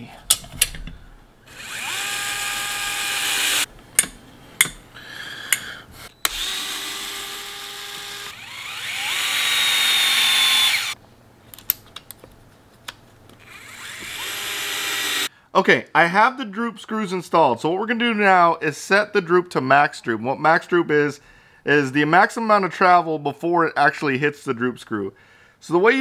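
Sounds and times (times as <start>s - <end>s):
electric screwdriver whining: 1.5s - 3.7s, 6.2s - 11.0s, 13.4s - 15.3s.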